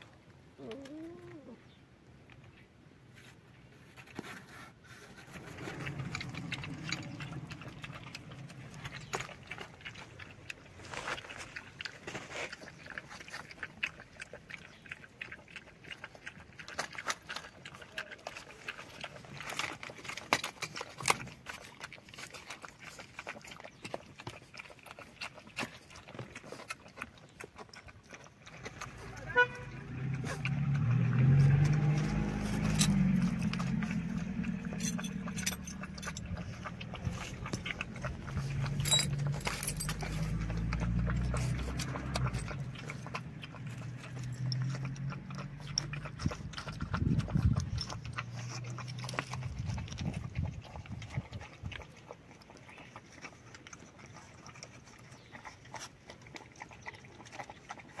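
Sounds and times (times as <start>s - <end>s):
puppies eating clicks: 0.0s - 58.0s
low rumble: 5.2s - 10.3s
vehicle engine running: 5.3s - 9.7s, 28.8s - 47.6s.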